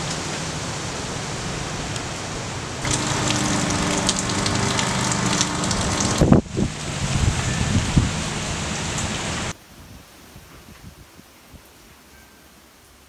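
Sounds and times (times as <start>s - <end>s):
steady rain: 0.0s - 9.6s
rain drops ticking: 2.8s - 7.0s
distant lawn mower engine: 2.8s - 9.5s.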